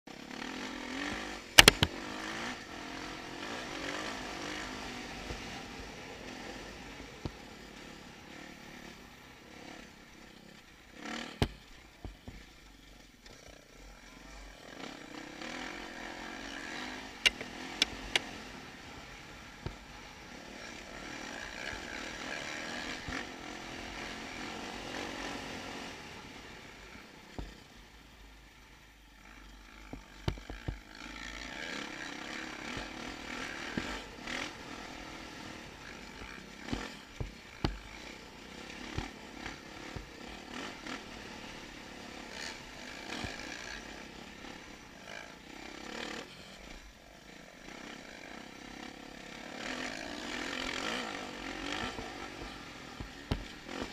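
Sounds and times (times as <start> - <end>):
dirt bike engine revving: 0.1 - 53.9
sharp knocks: 1.6 - 1.9.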